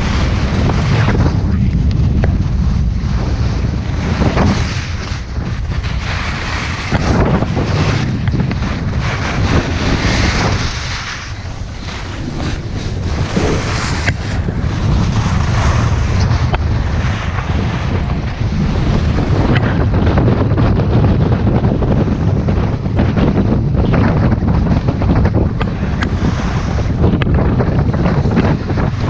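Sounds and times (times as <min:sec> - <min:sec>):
wind buffeting microphone: 0:00.0 - 0:29.0
ski edges carving snow: 0:03.0 - 0:22.5.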